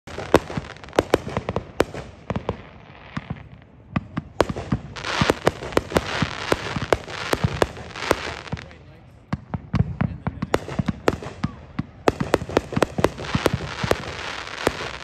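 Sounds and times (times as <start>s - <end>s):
fireworks bangs: 0.1s - 15.0s
fireworks hiss: 4.4s - 8.8s, 12.2s - 15.0s.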